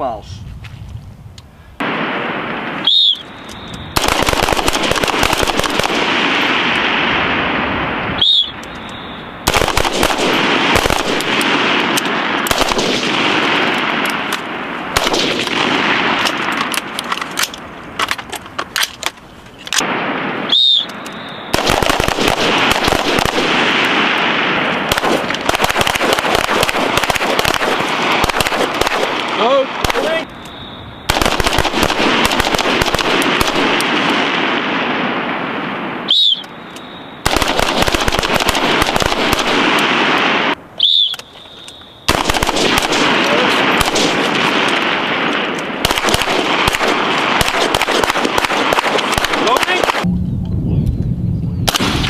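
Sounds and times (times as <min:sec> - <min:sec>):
rapid gunfire: 0:03.9 - 0:06.8, 0:09.5 - 0:14.0, 0:14.9 - 0:16.5, 0:21.5 - 0:30.2, 0:31.1 - 0:34.5, 0:37.2 - 0:40.1, 0:42.1 - 0:45.0, 0:45.8 - 0:50.1.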